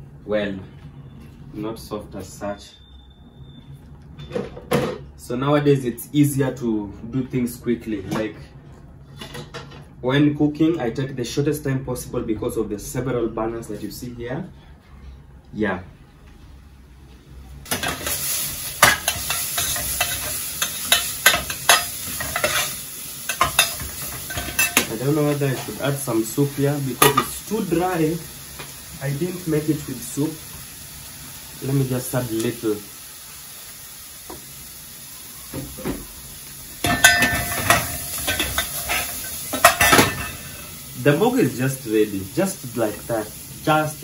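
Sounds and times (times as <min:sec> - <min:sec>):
food sizzling in a pan: 0:17.6 - 0:44.0
metal spoon clinking against pot: 0:18.8 - 0:22.7, 0:23.3 - 0:24.9, 0:36.8 - 0:40.3.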